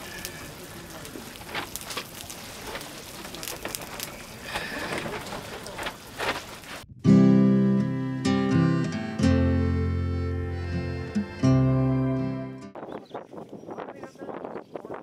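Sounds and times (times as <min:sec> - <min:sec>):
curry bubbling and crackling: 0:00.0 - 0:06.9
acoustic guitar music: 0:06.9 - 0:12.8.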